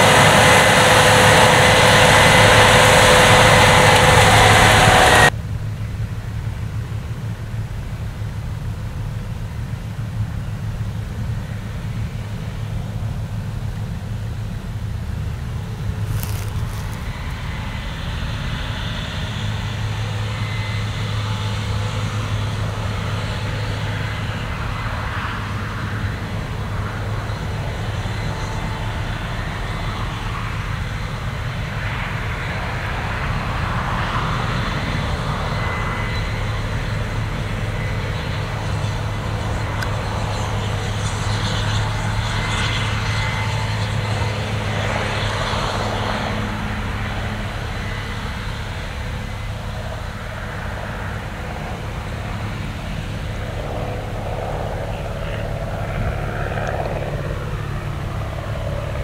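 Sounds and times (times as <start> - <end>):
rushing hiss of threshing: 0.0 - 5.3, 15.8 - 17.8
diesel engine drone: 0.0 - 59.0.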